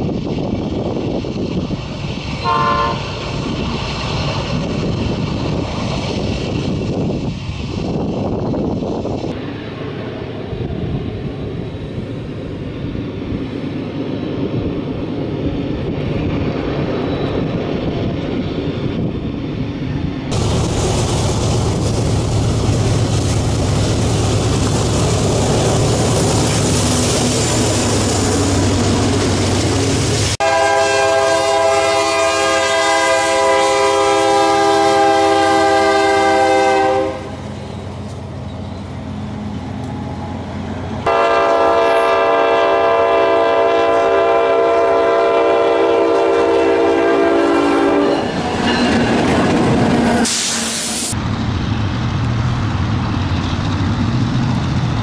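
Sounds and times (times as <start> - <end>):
passing train rumble: 0.0 - 55.0
locomotive air horn blasts: 2.4 - 3.3, 30.4 - 37.4, 41.1 - 48.3.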